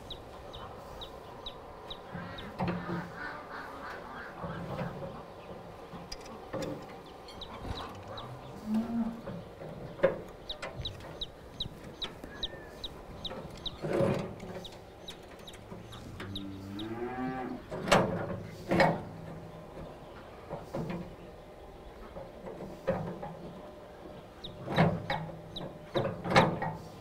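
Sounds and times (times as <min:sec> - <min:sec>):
cow mooing: 0:08.1 - 0:09.2, 0:16.2 - 0:17.7.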